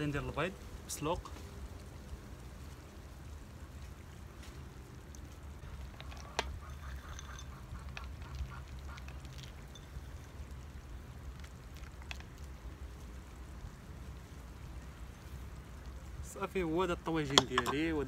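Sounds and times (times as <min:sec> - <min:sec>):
eggs clicking on dish: 0:05.9 - 0:09.6, 0:17.3 - 0:17.8.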